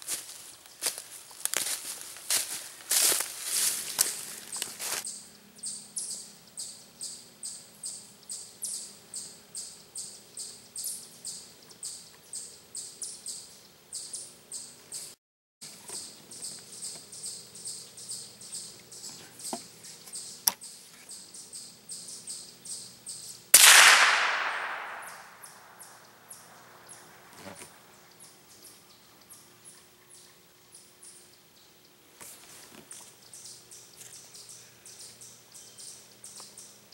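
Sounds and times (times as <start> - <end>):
steady high chirping: 16.0 - 27.2
rifle shot: 23.6 - 25.8.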